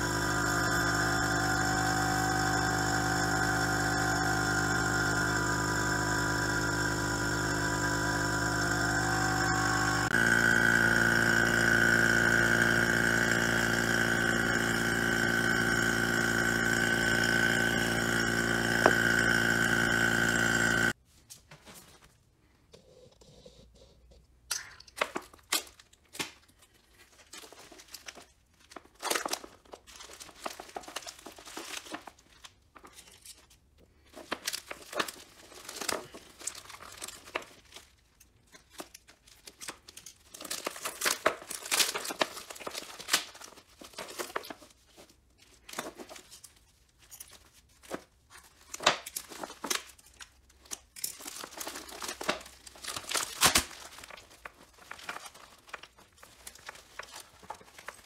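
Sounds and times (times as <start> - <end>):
plastic film crinkling: 25.5 - 58.0.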